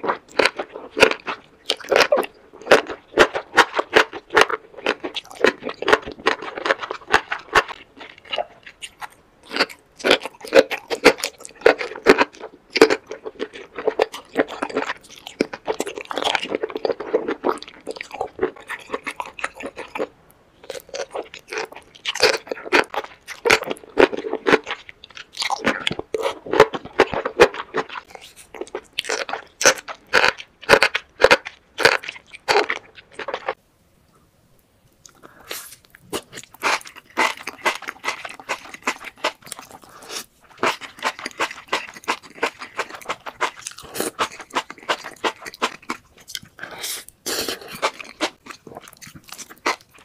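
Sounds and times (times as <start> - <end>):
wet chewing and slurping: 0.0 - 33.6, 35.0 - 50.0.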